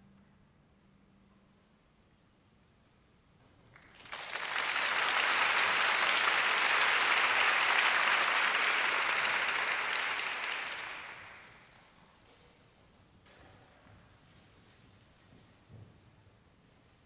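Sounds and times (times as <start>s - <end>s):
audience applauding: 3.8s - 11.9s.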